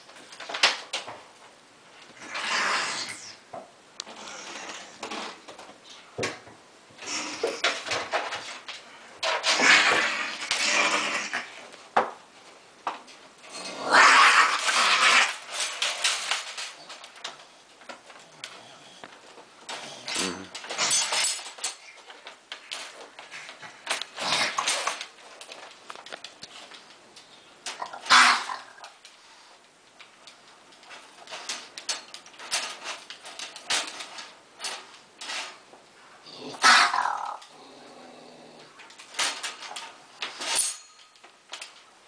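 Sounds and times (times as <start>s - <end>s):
raccoon growling and snarling: 2.2s - 3.5s, 4.1s - 5.4s, 7.0s - 11.8s, 13.4s - 17.2s, 19.7s - 25.5s, 27.7s - 29.0s, 36.2s - 39.8s
wire cage trap rattling: 19.7s - 22.0s, 38.9s - 41.8s.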